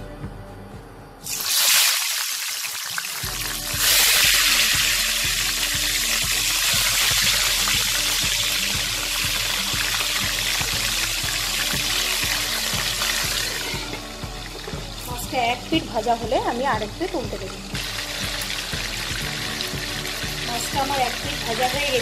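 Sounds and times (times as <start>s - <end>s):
fish sizzling in hot oil: 1.2s - 22.0s.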